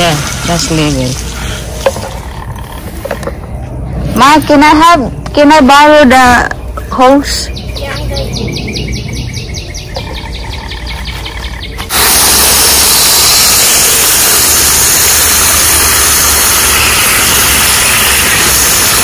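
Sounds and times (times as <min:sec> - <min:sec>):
garden hose spraying water: 0:00.0 - 0:03.0, 0:10.2 - 0:19.0
rapid chirping: 0:06.6 - 0:18.8.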